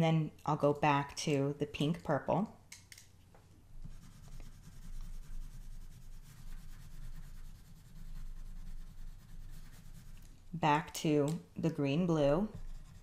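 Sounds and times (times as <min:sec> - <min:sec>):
pencil scratching on paper: 0:03.8 - 0:10.3, 0:12.2 - 0:13.0.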